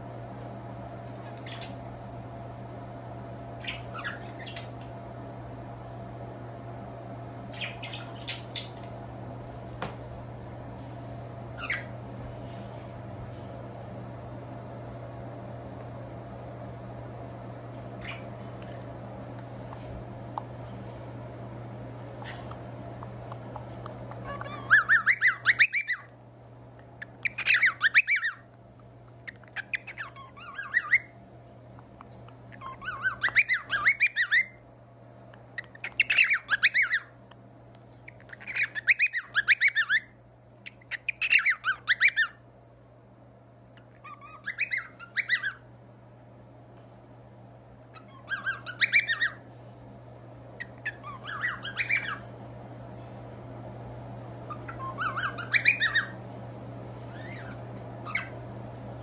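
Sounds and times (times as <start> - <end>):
steady low hum: 0.0 - 59.0
cockatiels chirping and squawking: 1.2 - 1.8, 3.6 - 4.8, 7.5 - 8.9, 11.6 - 12.0, 18.0 - 18.4, 22.0 - 22.6, 23.6 - 26.1, 27.0 - 28.5, 29.2 - 31.2, 32.5 - 34.6, 35.6 - 37.2, 38.0 - 42.4, 43.8 - 45.7, 47.9 - 49.5, 50.6 - 52.4, 54.4 - 58.4.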